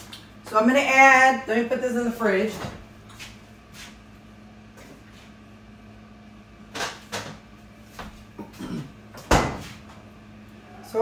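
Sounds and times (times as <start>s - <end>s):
refrigerator door knocks: 9.2s - 9.6s.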